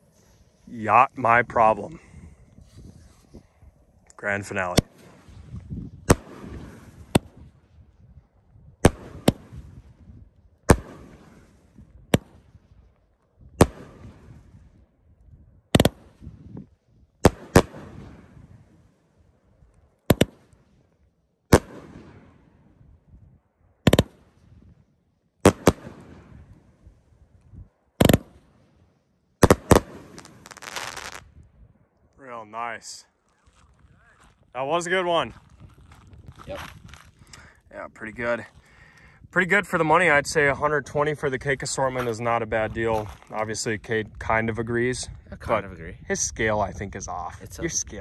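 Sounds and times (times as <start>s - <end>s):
firework bangs: 4.5s - 7.6s, 8.7s - 12.6s, 13.5s - 14.7s, 15.7s - 16.4s, 17.2s - 18.7s, 20.0s - 20.6s, 21.5s - 22.6s, 23.8s - 24.4s, 25.4s - 26.8s, 27.9s - 28.7s, 29.4s - 31.4s.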